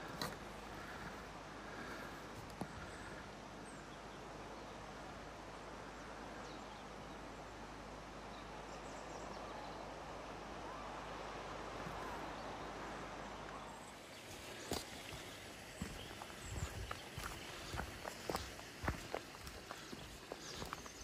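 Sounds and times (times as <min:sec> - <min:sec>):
faint bird calls: 0:00.0 - 0:04.8, 0:10.6 - 0:21.0
steady outdoor hiss: 0:00.0 - 0:21.0.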